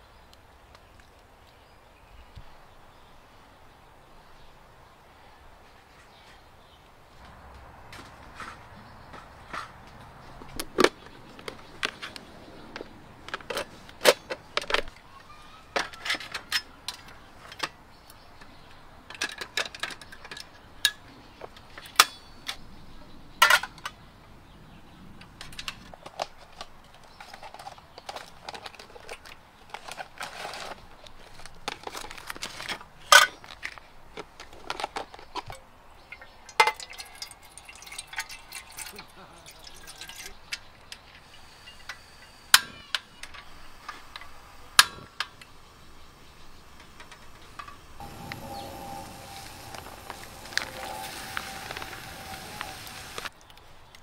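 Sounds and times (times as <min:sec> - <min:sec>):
metal cookware clinking: 0:35.5 - 0:40.6
water poured into metal pot: 0:36.0 - 0:40.6, 0:48.0 - 0:53.3.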